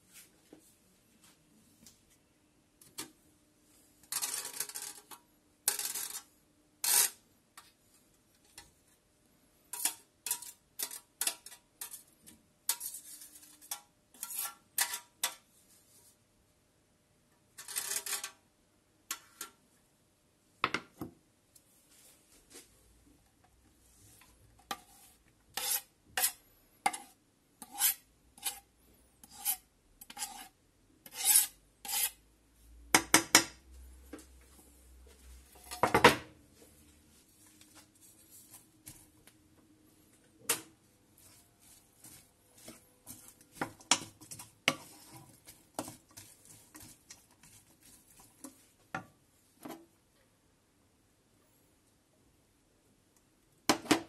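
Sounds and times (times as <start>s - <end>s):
knife scraping metal grater: 9.7s - 12.0s, 12.7s - 15.1s, 17.6s - 18.4s, 24.7s - 32.2s, 42.0s - 48.3s.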